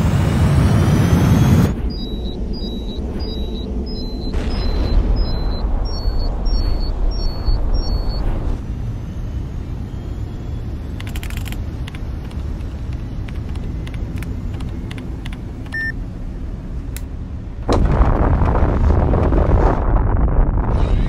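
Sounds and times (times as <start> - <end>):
steady low rumble: 0.0 - 21.0
short beep: 1.7 - 8.3, 15.7 - 16.0
keypad clicks: 11.0 - 15.9.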